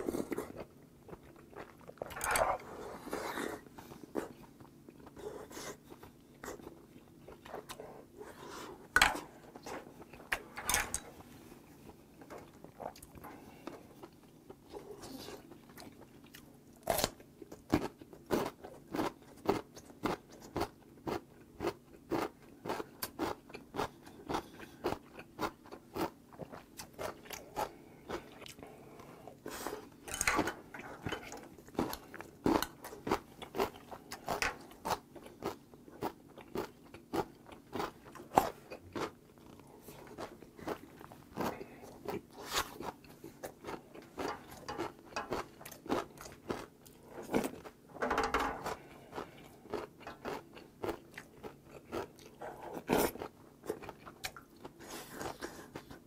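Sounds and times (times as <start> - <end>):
person chewing with wet smacks: 11.8 - 47.8, 48.8 - 56.0.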